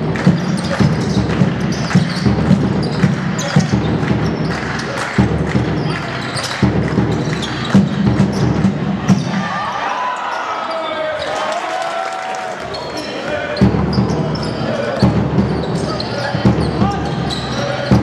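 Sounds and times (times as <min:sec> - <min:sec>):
basketball bouncing on court: 0:00.0 - 0:09.4
players and spectators talking: 0:00.0 - 0:18.0.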